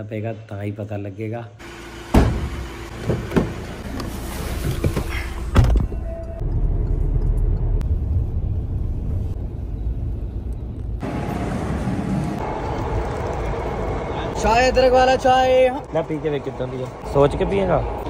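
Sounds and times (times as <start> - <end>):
vehicle rumble: 1.6 - 18.0
thump: 2.1 - 3.6.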